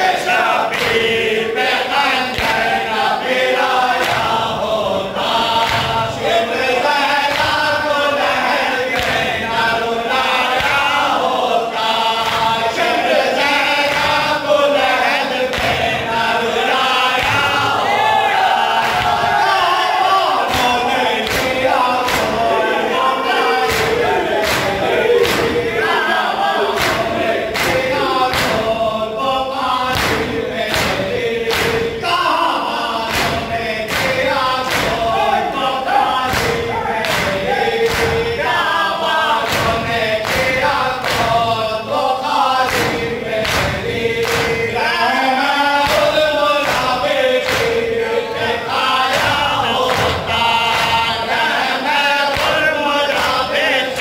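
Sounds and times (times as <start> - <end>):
men chanting in unison: 0.0 - 54.0
hands slapping chests: 0.7 - 1.1, 2.3 - 2.8, 4.0 - 4.5, 5.5 - 6.0, 7.2 - 7.7, 8.9 - 9.6, 10.5 - 11.0, 12.0 - 12.9, 15.5 - 15.9, 17.1 - 17.7, 18.8 - 19.4, 20.4 - 22.5, 23.5 - 25.8, 26.7 - 28.8, 29.9 - 31.9, 33.0 - 38.4, 39.4 - 41.4, 42.6 - 44.7, 45.8 - 47.9, 49.1 - 51.2, 52.3 - 53.4.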